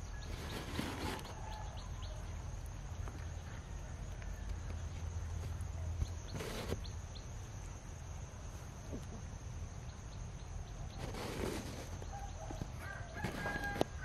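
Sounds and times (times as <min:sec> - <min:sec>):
faint bird chirps: 0:00.0 - 0:07.7.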